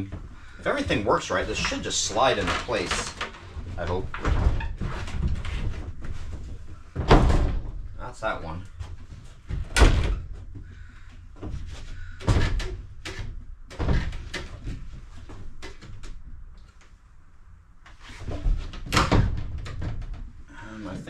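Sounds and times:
knocks and thuds: 0.0s - 8.0s, 11.4s - 16.1s.

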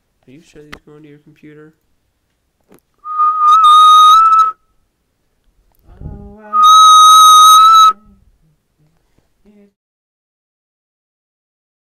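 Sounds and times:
high steady whistle tone: 3.0s - 4.8s, 6.5s - 8.2s
lower stepped tone: 3.1s - 4.5s, 5.9s - 8.1s.

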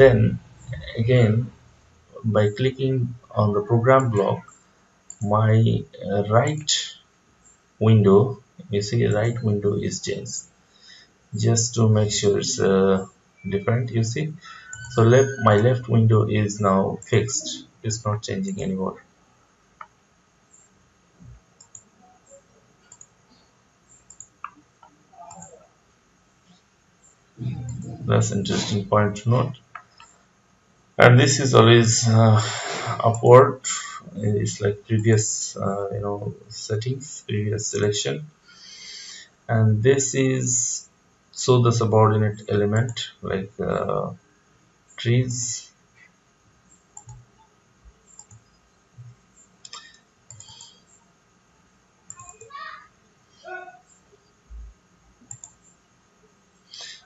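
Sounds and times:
computer mouse clicking: 21.6s - 23.2s, 23.9s - 25.6s, 29.7s - 30.2s, 46.7s - 47.5s, 48.1s - 51.0s, 52.1s - 52.5s, 55.3s - 55.8s.

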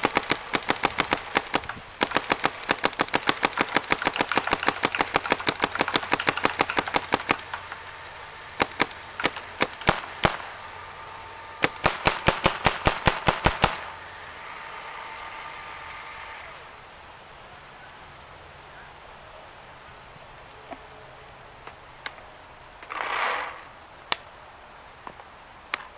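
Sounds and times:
paintball marker firing shots: 0.0s - 7.7s, 8.6s - 10.4s, 11.6s - 13.9s.

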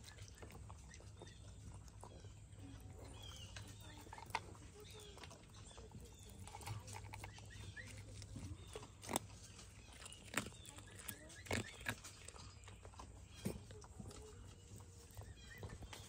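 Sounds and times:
fox chewing: 0.0s - 16.0s
sharp crunches on metal bowl: 3.1s - 14.2s.

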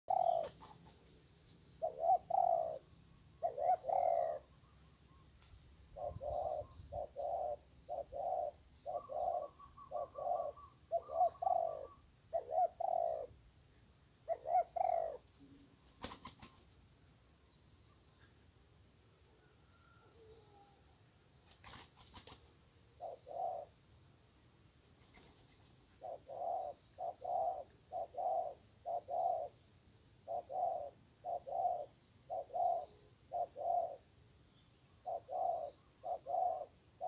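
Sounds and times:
dove cooing: 0.0s - 0.9s, 1.8s - 5.3s, 5.9s - 13.3s, 14.2s - 16.6s, 23.0s - 23.8s, 25.1s - 29.6s, 30.2s - 34.1s, 35.0s - 37.0s.

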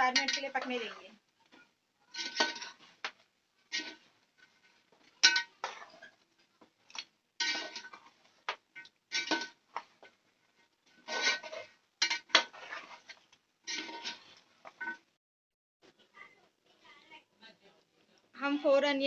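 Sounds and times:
metal spoon scraping metal pot: 0.0s - 6.2s, 6.9s - 15.0s.

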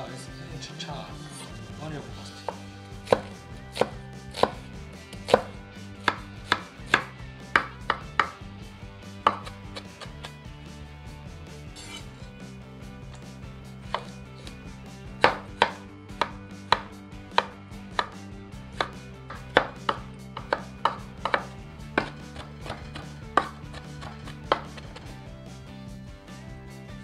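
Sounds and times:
cleaver chopping on wooden board: 2.2s - 8.4s, 9.2s - 10.3s, 13.9s - 14.6s, 15.2s - 25.1s.

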